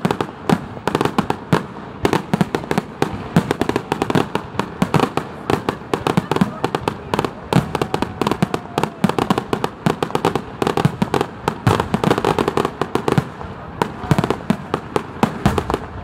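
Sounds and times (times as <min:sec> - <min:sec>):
fireworks bursting with bangs and crackles: 0:00.0 - 0:16.0.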